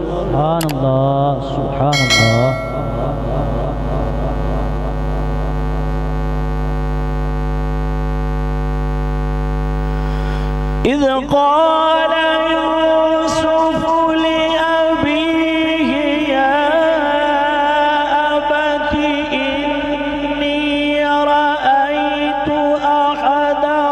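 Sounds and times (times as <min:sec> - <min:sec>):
man reciting: 0:00.0 - 0:01.9, 0:10.9 - 0:23.9.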